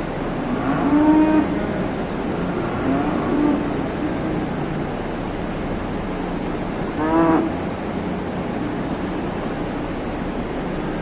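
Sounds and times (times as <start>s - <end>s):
steady background hiss: 0.0s - 11.0s
cow mooing: 0.5s - 1.8s, 2.5s - 4.4s, 7.0s - 7.6s.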